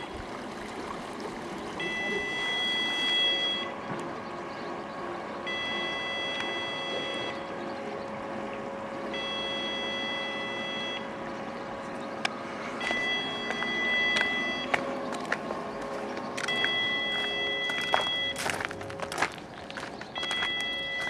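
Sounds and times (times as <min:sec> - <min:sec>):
electronic warning beeps: 0:01.8 - 0:03.8, 0:05.4 - 0:08.1, 0:09.0 - 0:11.2, 0:12.8 - 0:21.0.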